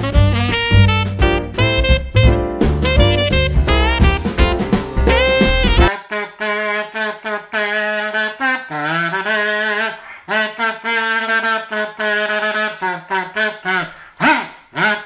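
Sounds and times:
trumpet solo: 0.0 - 8.2
jazzy saxophone music: 0.0 - 12.7.

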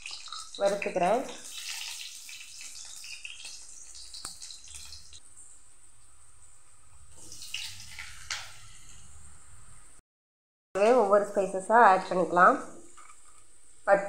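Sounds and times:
garlic sizzling in oil: 0.0 - 9.5.

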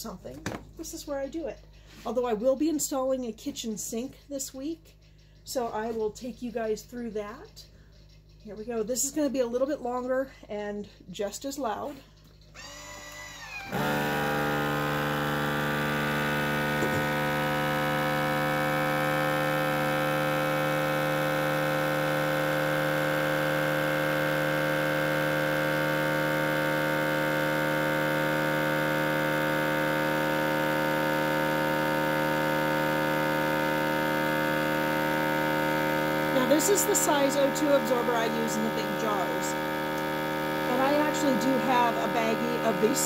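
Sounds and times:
vacuum sealer pump humming: 12.5 - 43.0.

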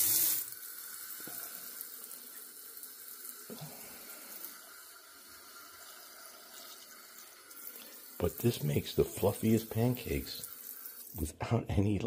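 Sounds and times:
faucet water running into sink: 0.0 - 11.2.

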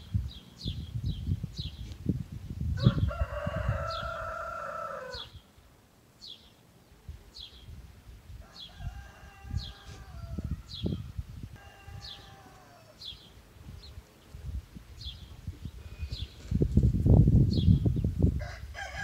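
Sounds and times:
rooster crowing: 2.8 - 5.3, 8.4 - 10.9, 11.6 - 13.1, 18.4 - 19.0.

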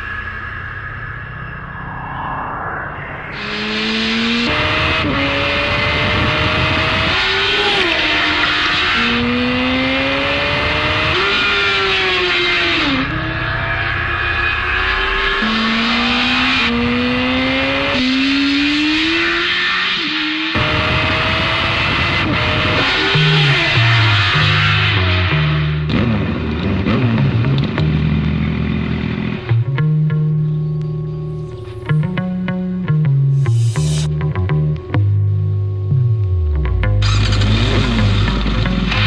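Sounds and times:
motorcycle engine revving high: 3.3 - 29.7, 36.3 - 39.0.

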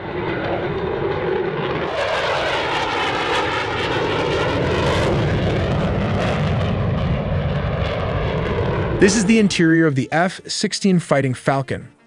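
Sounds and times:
fighter jet engine rushing: 0.0 - 10.4.

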